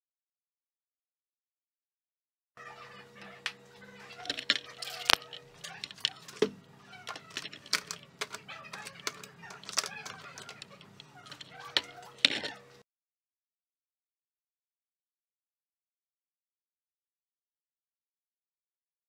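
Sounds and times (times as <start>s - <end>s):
faint steady hum: 2.6s - 12.8s
cords and plugs rustling: 3.2s - 12.8s.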